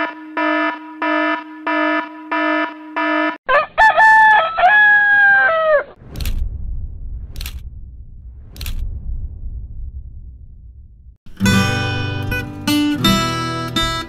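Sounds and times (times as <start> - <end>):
alarm clock beeping: 0.0 - 3.4
rooster crowing: 3.5 - 6.0.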